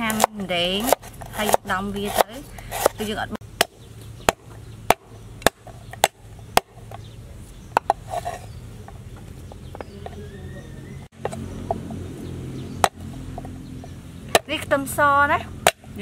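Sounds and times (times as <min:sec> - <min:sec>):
cleaver chopping on wooden board: 0:00.0 - 0:07.1, 0:12.8 - 0:13.6, 0:15.6 - 0:16.0
faint taps and scraping: 0:06.8 - 0:10.2.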